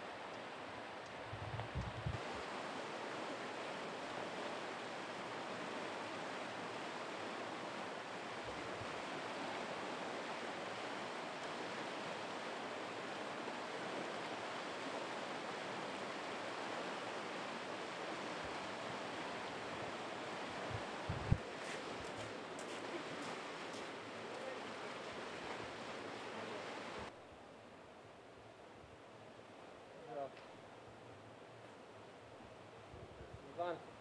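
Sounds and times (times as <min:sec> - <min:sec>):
floodwater rushing: 0:02.1 - 0:27.1.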